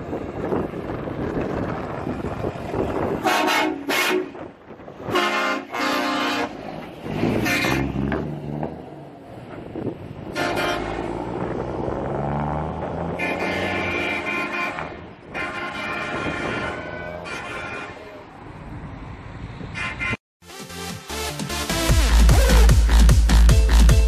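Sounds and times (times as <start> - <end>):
diesel engine rumble: 0.0 - 20.1
truck horn blasts: 3.2 - 8.1, 10.3 - 11.4, 13.0 - 18.2, 19.8 - 20.2.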